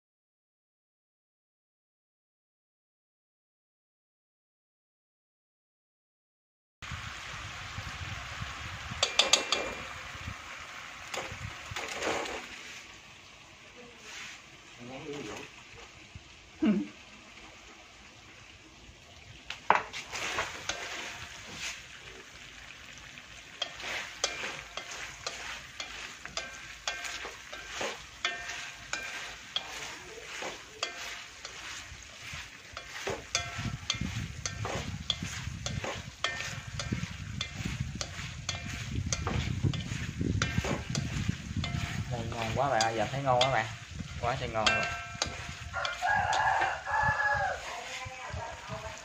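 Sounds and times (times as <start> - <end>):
eggs sizzling in a wok: 6.8 - 49.0
chopsticks clicking on a wok: 9.0 - 9.8, 23.6 - 48.0.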